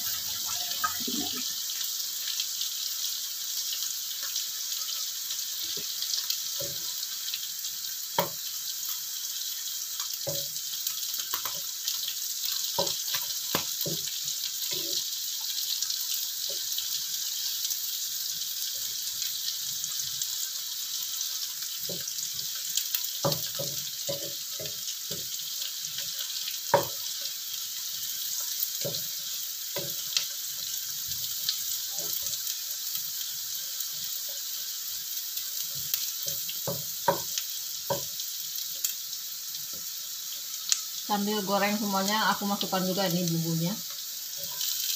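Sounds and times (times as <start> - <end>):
oil sizzling in a wok: 0.0 - 44.9
wooden spatula knocking on pan: 8.2 - 8.4, 12.8 - 14.1, 26.7 - 27.0, 36.6 - 37.3.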